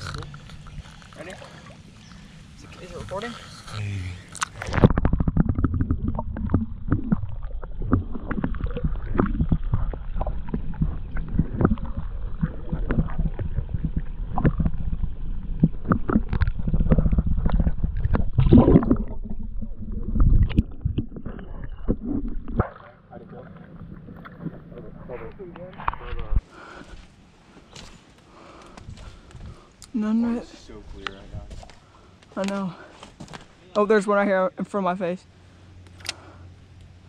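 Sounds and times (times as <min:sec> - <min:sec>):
underwater rumble and sloshing: 0:00.0 - 0:26.8.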